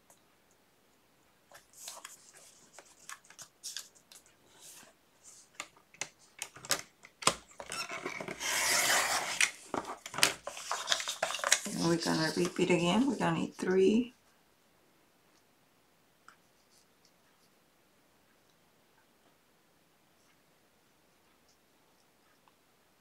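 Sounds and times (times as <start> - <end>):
paper taps and rustles: 1.5 - 4.4, 9.3 - 13.1
rasping cut through paper: 8.4 - 9.5.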